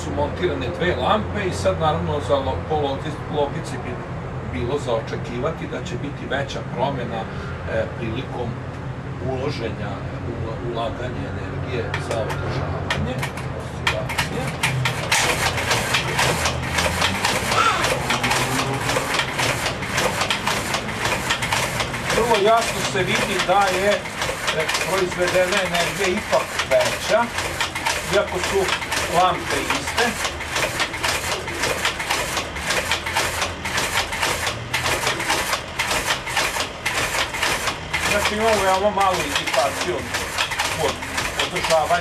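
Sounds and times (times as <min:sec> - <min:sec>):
flashlights rattling and knocking: 0:12.0 - 0:41.8
metallic clacking of a pendulum machine: 0:12.0 - 0:42.0.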